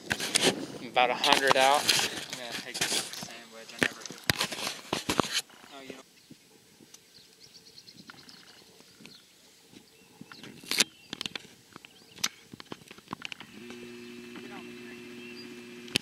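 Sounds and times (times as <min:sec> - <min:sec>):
birds chirping faintly: 0:05.4 - 0:16.0.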